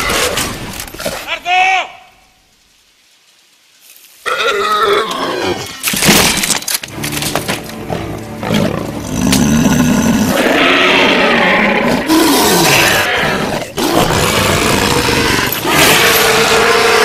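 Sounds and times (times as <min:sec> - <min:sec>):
army roaring and growling: 0:04.3 - 0:05.8, 0:07.9 - 0:17.0.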